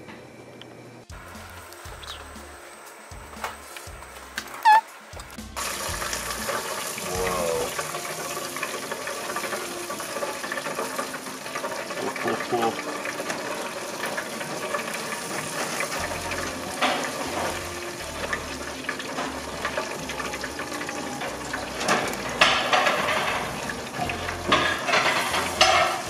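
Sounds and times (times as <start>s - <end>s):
steady hiss: 1.1s - 26.0s
metal tongs clinking on wire basket: 20.8s - 26.0s.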